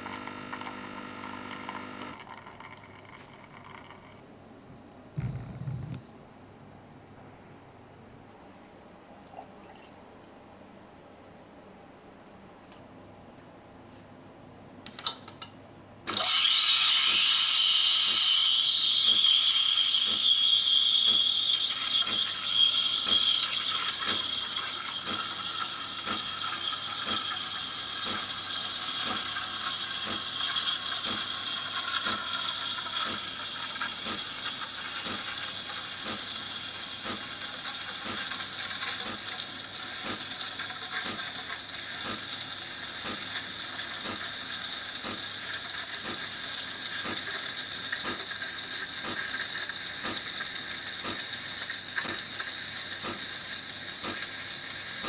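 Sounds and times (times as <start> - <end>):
steam wand frothing milk: 16.1 - 55.0.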